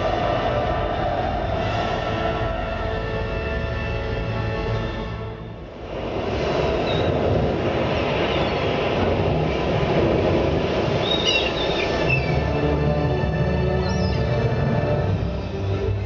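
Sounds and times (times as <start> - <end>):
loud dense rushing rumble: 0.0 - 16.0.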